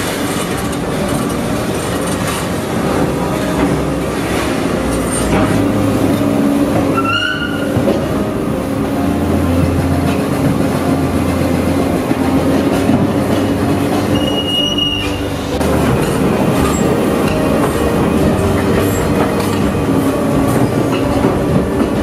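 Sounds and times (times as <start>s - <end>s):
excavator engine drone: 0.0s - 22.0s
high metallic squeals: 4.4s - 8.3s, 13.8s - 21.3s.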